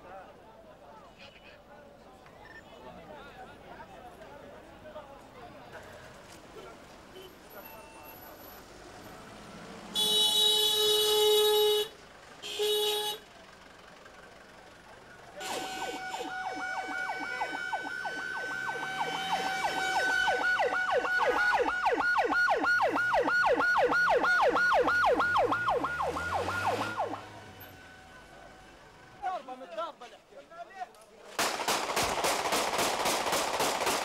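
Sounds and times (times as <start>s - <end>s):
vehicle horn blasts: 10.0s - 13.2s, 15.4s - 20.5s
emergency siren yelping: 15.4s - 28.0s.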